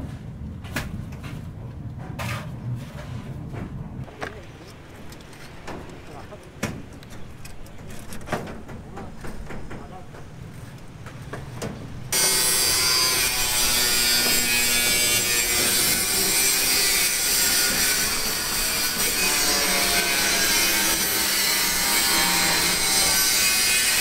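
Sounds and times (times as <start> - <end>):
power tool grinding: 12.1 - 24.0.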